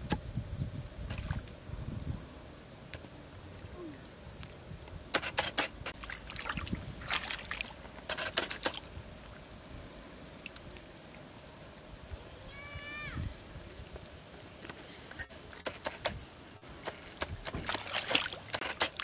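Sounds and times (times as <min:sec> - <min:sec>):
hands splashing in muddy water: 0:06.0 - 0:07.8, 0:16.9 - 0:19.0.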